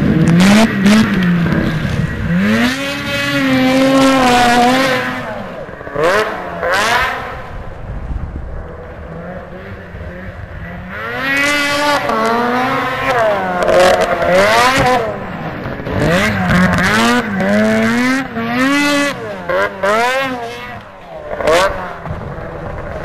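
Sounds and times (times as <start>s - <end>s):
snowmobile engine revving: 0.0s - 23.0s.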